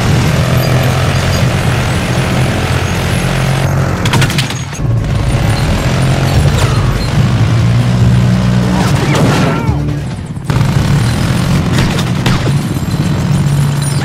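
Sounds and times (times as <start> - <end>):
helicopter rotors: 0.0 - 14.0
sharp gunshots: 4.0 - 12.8
machine-gun fire: 4.1 - 12.9.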